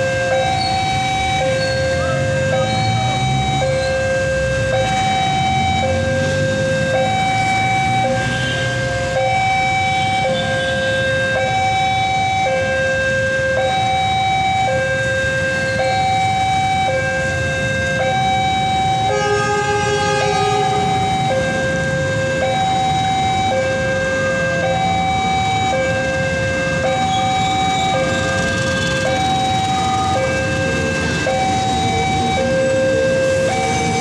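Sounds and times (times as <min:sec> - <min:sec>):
level crossing alarm two-tone signal: 0:00.0 - 0:17.3, 0:17.9 - 0:34.0
road traffic rumble: 0:00.0 - 0:34.0.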